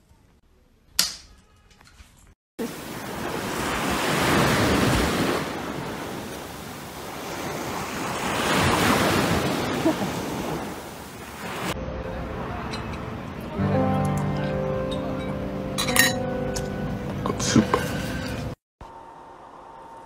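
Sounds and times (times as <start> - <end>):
surf washing up a beach: 2.6 - 13.7.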